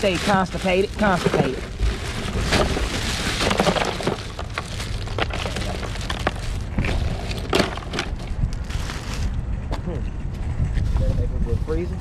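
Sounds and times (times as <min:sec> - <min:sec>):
ice cubes clattering into cooler: 0:00.0 - 0:08.2.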